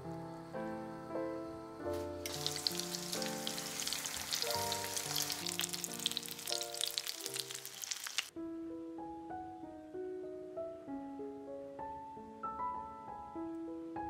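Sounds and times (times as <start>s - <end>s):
soft piano music: 0.0s - 14.0s
food sizzling in hot oil: 2.2s - 8.3s.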